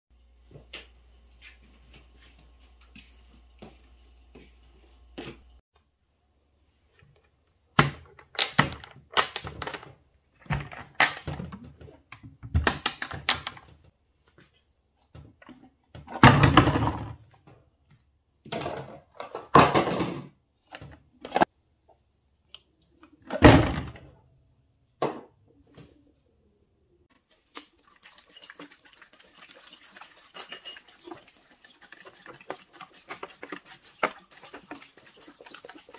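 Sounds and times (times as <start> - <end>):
water pouring into jug: 27.2 - 35.9.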